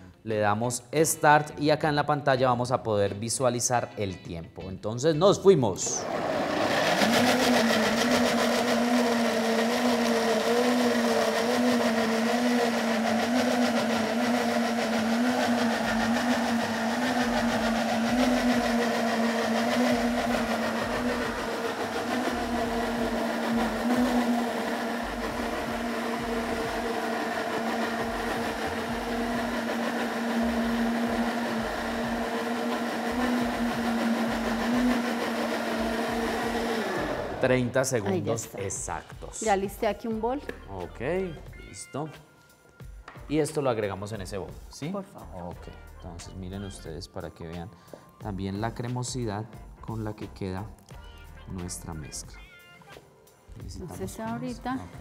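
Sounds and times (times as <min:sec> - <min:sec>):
blender motor whirring: 0:05.9 - 0:37.8.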